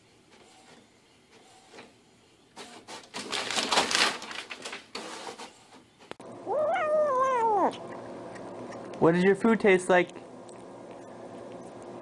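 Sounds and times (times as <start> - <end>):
printer rattling and clattering: 2.6 - 5.8.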